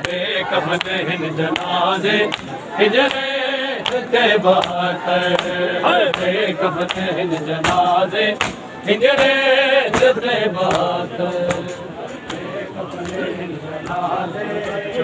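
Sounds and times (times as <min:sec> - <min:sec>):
men chanting in unison: 0:00.0 - 0:15.0
hands slapping bare chests: 0:00.8 - 0:08.6.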